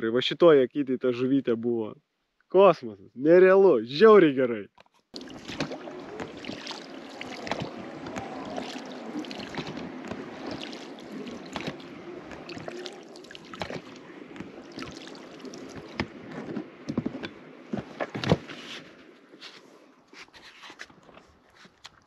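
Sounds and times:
water splashing at oar blades: 0:05.1 - 0:22.0.

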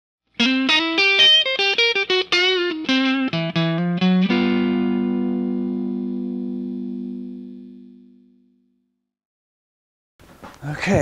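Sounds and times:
guitar picked notes and chord: 0:00.4 - 0:08.9.

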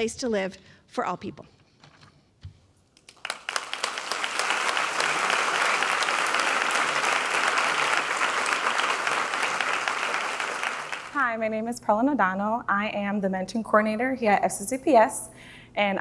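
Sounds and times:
audience applauding: 0:03.0 - 0:11.2.

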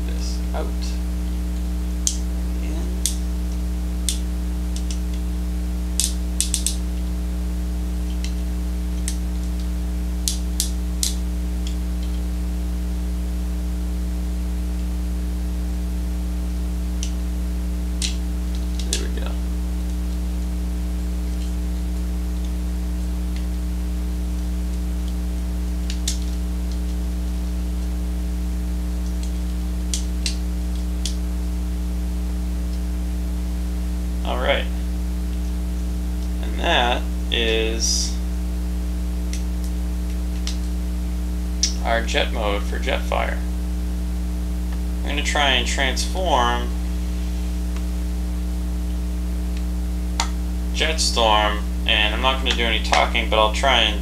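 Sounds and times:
electrical mains hum: 0:00.0 - 0:54.0
plastic toy clicks and snaps: 0:06.0 - 0:06.8.

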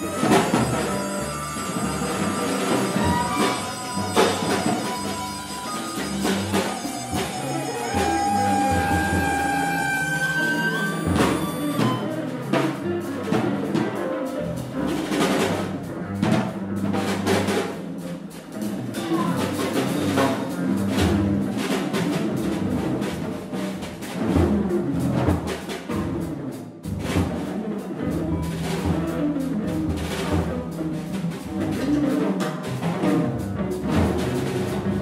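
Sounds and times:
saxophone: 0:00.0 - 0:13.0
bowed violin: 0:00.0 - 0:15.8
double bass: 0:00.0 - 0:35.0
drum kit: 0:00.0 - 0:35.0.

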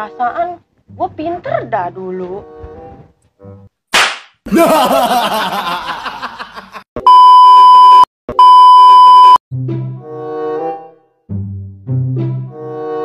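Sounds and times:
music: 0:00.0 - 0:03.7, 0:09.5 - 0:13.0
test-pattern tone beeps: 0:07.0 - 0:09.4.

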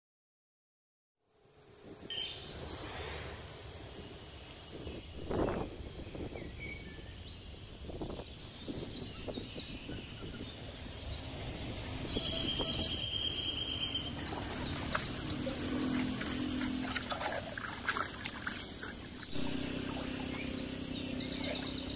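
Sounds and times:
birds chirping and calling: 0:03.4 - 0:21.9
high insect buzz: 0:19.2 - 0:21.9.

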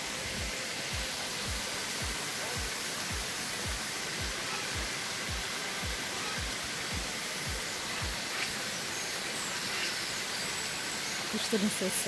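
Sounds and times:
water rushing over a weir: 0:00.0 - 0:12.0
faint bird chirps: 0:07.6 - 0:12.0.

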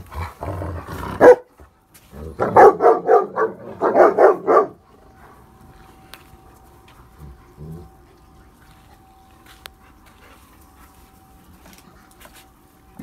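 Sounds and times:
dogs play-growling: 0:00.0 - 0:01.4, 0:06.4 - 0:09.1
dog barking: 0:01.2 - 0:01.5, 0:02.4 - 0:04.8.

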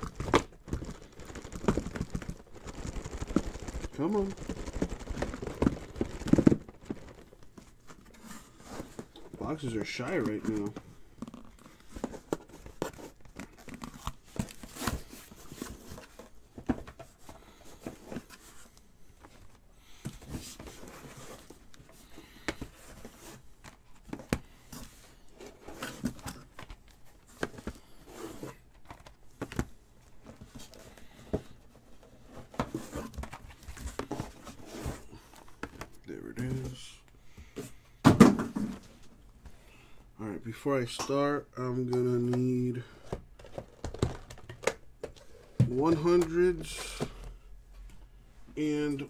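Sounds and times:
cardboard and plastic crinkling: 0:00.0 - 0:37.1, 0:41.8 - 0:47.5
boxes knocking when set down: 0:38.0 - 0:38.9.

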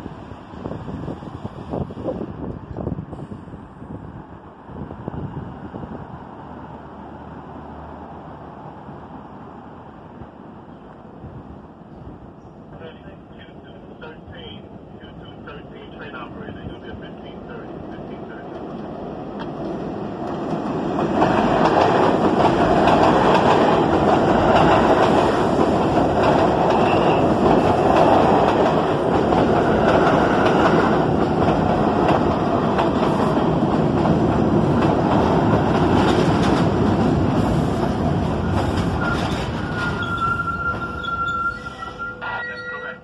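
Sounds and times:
train wheels clattering on rails: 0:18.5 - 0:41.1
train brakes squealing: 0:38.4 - 0:43.0.

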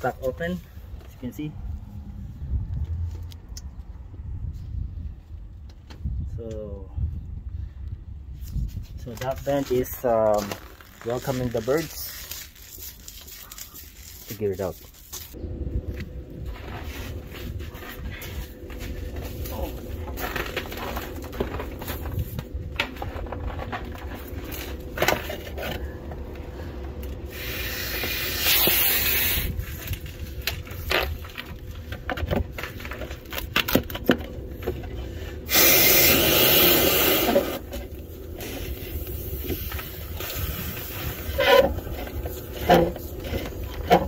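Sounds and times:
compressed air hissing: 0:27.2 - 0:29.6, 0:35.1 - 0:37.7
scraping on metal vent hood: 0:34.5 - 0:44.0.

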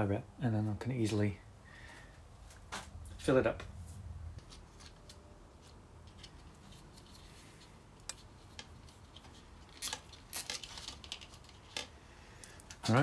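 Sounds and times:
small parts clicking and tapping: 0:04.4 - 0:12.9.

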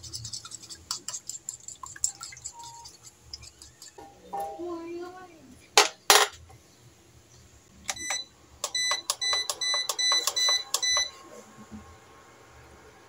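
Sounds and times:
short electronic beeps: 0:07.9 - 0:11.2.

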